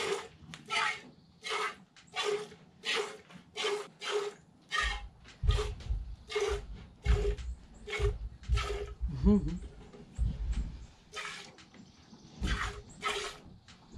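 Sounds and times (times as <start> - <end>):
low bumps and rumble: 4.8 - 11.1.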